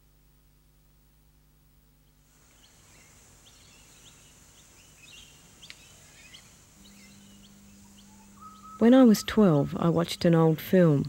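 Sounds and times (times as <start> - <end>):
low steady hum: 0.0 - 11.0
steady high hiss: 1.3 - 11.0
faint birds chirping: 2.1 - 11.0.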